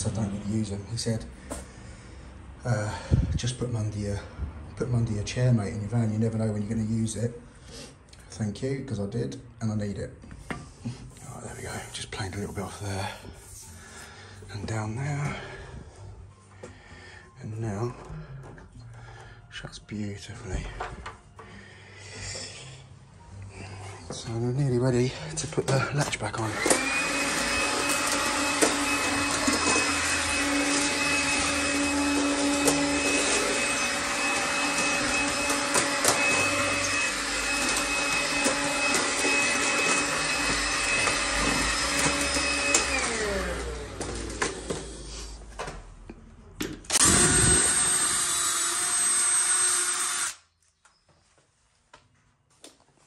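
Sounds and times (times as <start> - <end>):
stick vacuum running: 26.4 - 45.3, 46.9 - 50.4.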